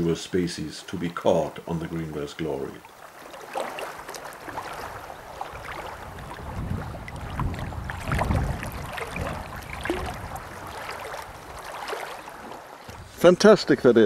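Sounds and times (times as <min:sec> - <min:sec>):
wind buffeting microphone: 0:04.5 - 0:13.4.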